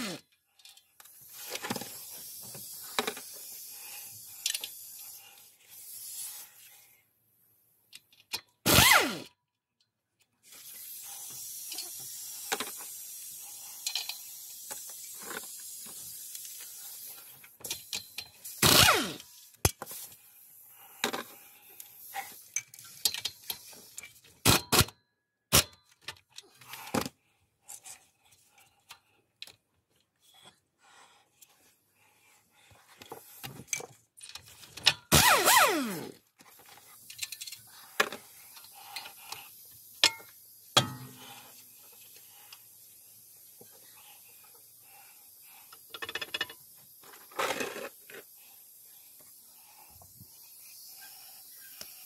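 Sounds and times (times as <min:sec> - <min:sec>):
power tool whirring: 0:00.0 - 0:00.2, 0:08.7 - 0:09.3, 0:18.6 - 0:19.2, 0:35.1 - 0:36.2
metallic clicks and knocks of tools: 0:07.9 - 0:08.6, 0:22.5 - 0:26.8, 0:33.0 - 0:35.1, 0:37.0 - 0:39.4, 0:40.0 - 0:41.2, 0:45.7 - 0:47.8
loud power tool bursts: 0:08.7 - 0:09.3, 0:18.6 - 0:19.2, 0:35.1 - 0:36.2.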